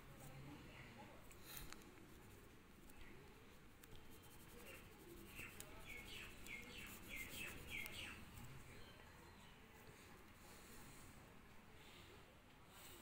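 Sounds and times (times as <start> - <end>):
pastel rubbing on paper: 3.9 - 8.0.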